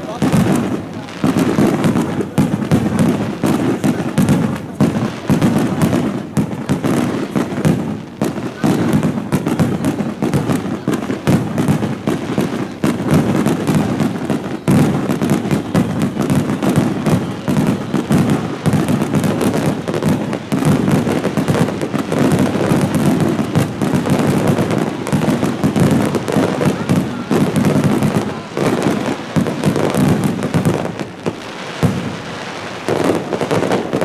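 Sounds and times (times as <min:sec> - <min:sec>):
fireworks bursting in a barrage: 0:00.0 - 0:34.0.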